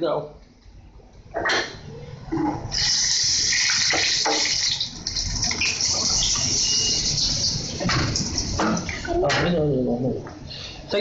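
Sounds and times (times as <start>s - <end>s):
ghee sizzling: 2.6s - 9.1s.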